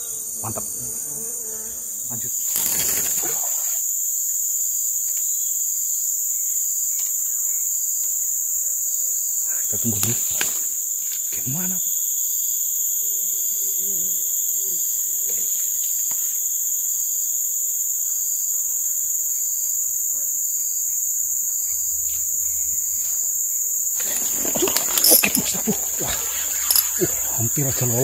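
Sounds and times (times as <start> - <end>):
forest insects chorus: 0.0 - 28.0
rustling and handling noises: 24.0 - 28.0.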